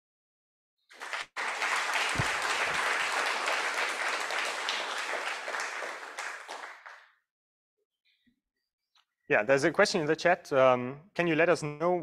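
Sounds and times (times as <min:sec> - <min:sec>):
audience applauding: 0:00.9 - 0:07.1.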